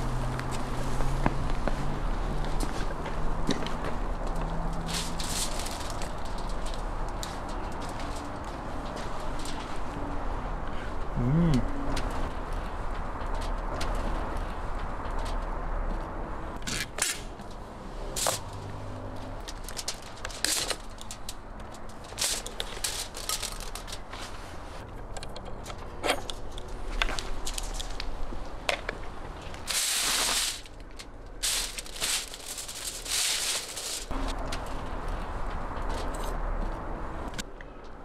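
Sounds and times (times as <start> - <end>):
rustling noise: 0.0 - 10.5, 11.9 - 24.9, 26.4 - 36.8
metal clicks and clinks: 25.0 - 28.0.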